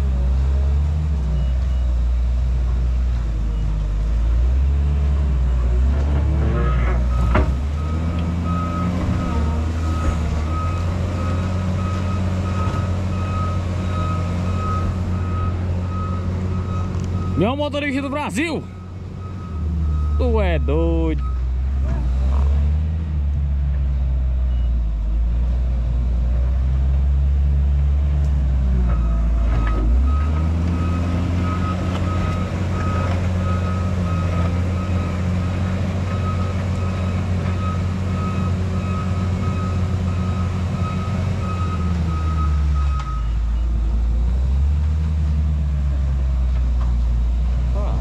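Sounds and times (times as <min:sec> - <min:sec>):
heavy diesel engine running: 0:00.0 - 0:25.3, 0:27.0 - 0:48.0
reversing alarm beeping: 0:07.1 - 0:21.5, 0:29.0 - 0:43.9.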